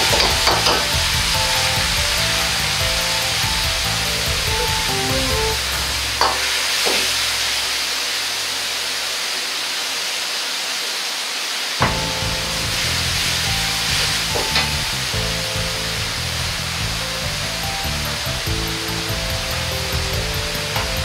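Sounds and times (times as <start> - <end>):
food sizzling in a wok: 0.0 - 21.0
metal ladle striking wok: 5.7 - 7.8.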